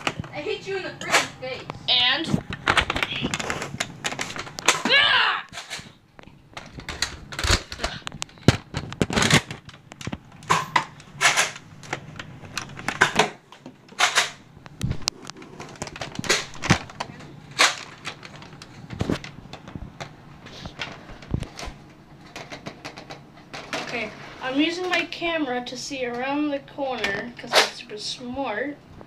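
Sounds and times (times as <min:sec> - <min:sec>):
phone handling clicks and rustles: 0:05.5 - 0:24.1.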